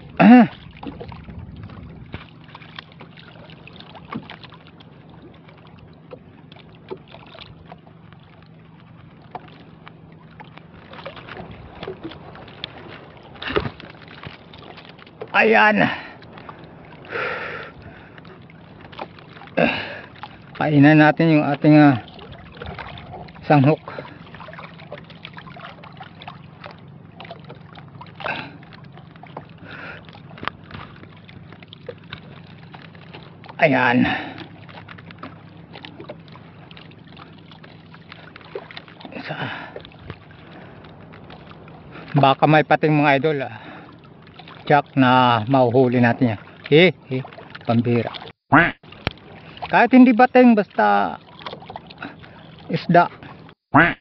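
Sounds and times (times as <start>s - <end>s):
low steady hum: 0.0s - 42.4s
water lapping against a boat: 0.0s - 54.0s.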